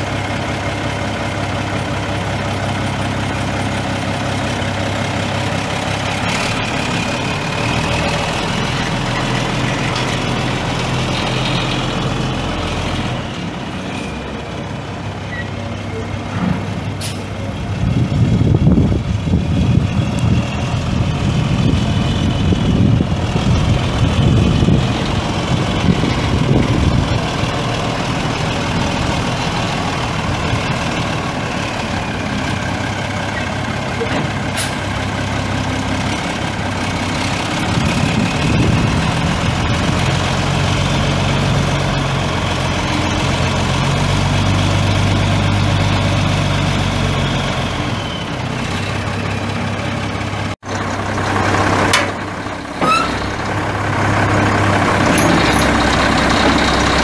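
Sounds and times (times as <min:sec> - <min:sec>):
diesel truck engine running: 0:00.0 - 0:57.0
sharp clicks and knocks: 0:51.9 - 0:52.2.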